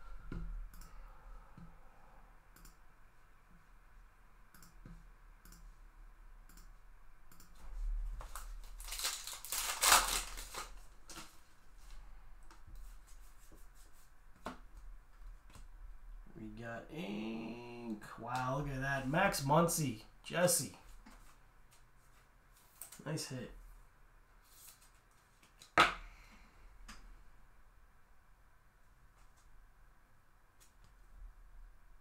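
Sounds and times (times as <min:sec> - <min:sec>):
wrapper tearing and crinkling: 0:08.4 - 0:11.3.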